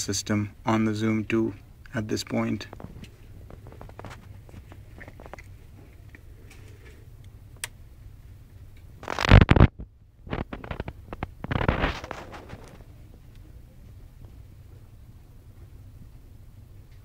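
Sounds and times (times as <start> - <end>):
faint low hum: 0.0 - 17.0
microphone rubbing: 2.7 - 6.0, 9.0 - 13.2.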